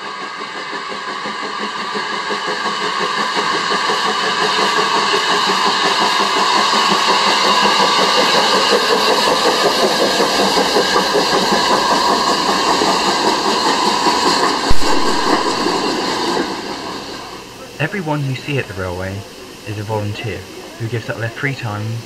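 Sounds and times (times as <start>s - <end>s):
train rumbling and clattering on rails: 0.0s - 22.0s
sharp knock: 14.7s - 15.8s.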